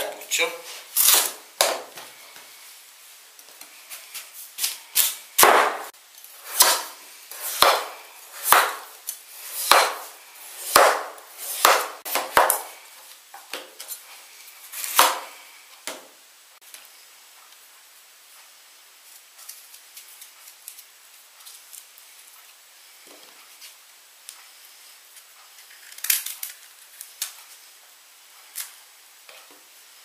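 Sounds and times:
knife chopping on plastic board: 5.4s - 5.9s, 6.5s - 8.9s, 9.5s - 12.7s, 14.9s - 15.3s.

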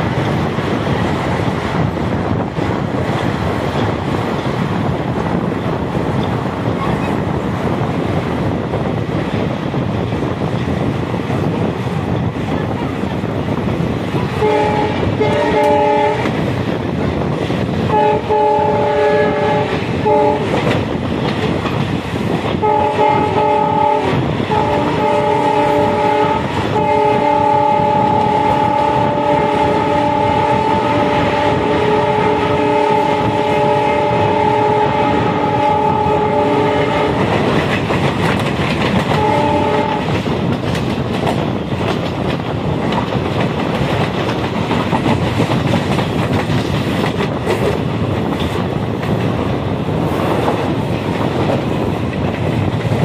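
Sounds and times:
train wheels clattering on rails: 0.0s - 53.0s
locomotive horn blasts: 14.4s - 16.4s, 17.9s - 20.6s, 22.6s - 37.2s, 39.1s - 40.1s.

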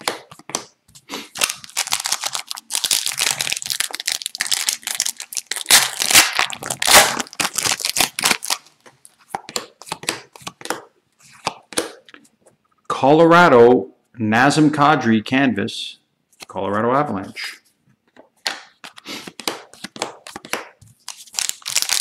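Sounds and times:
cards rustling: 0.4s - 12.3s, 18.2s - 22.0s
foil wrapper crinkling: 1.3s - 9.2s, 21.0s - 22.0s.

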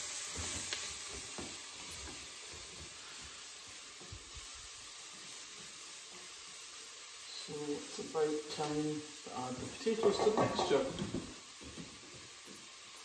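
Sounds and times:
onions sizzling in a pot: 0.0s - 13.0s
spatula knocking against pan: 10.0s - 11.3s.

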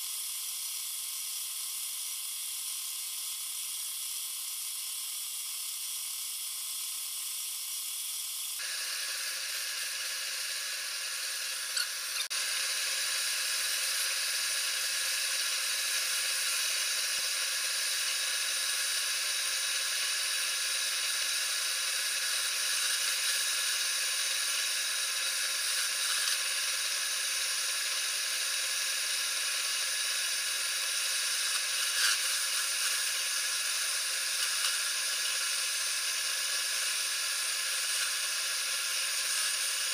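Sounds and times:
chisel cutting wood hiss: 0.0s - 39.9s
lathe motor whine: 8.5s - 39.9s.

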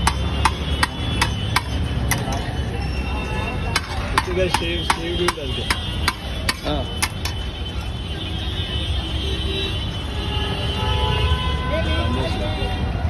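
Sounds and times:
metal ladle knocking on pot: 0.0s - 2.4s, 3.7s - 7.4s
low rumble of road traffic: 0.0s - 13.0s.

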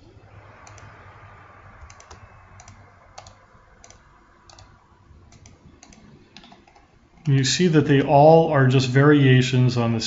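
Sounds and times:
faint steady low hum: 0.0s - 10.0s
computer mouse clicking: 0.6s - 1.0s, 1.8s - 7.4s.

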